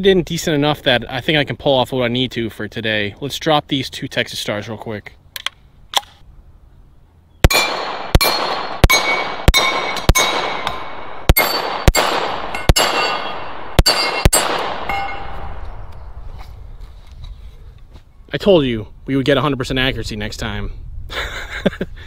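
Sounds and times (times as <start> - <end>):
rifle gunshots: 7.4 - 15.8
steel targets clanging: 7.6 - 15.5.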